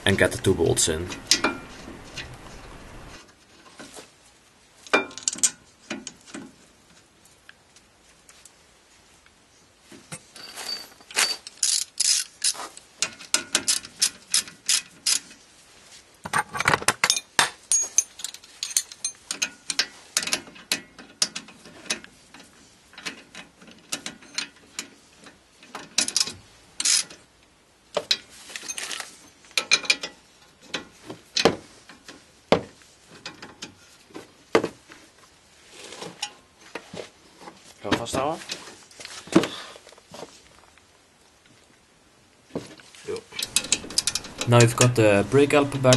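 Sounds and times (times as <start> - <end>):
metal clinks: 10.3 - 11.9, 17.1 - 19.6, 43.4 - 44.7.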